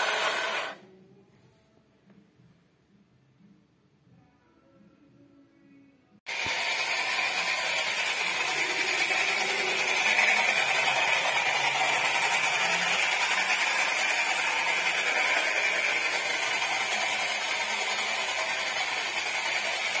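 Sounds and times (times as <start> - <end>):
toy truck motor whirring: 0.0 - 0.8, 6.3 - 20.0.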